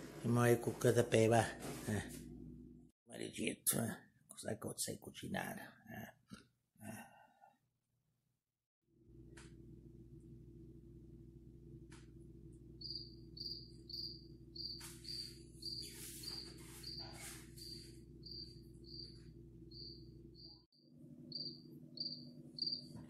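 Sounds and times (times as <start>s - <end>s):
cricket chirping through phone speaker: 12.8s - 20.6s, 21.3s - 23.0s.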